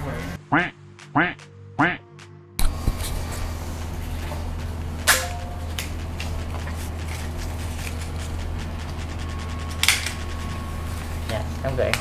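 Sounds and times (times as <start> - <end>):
shop room hum: 2.6 - 12.0.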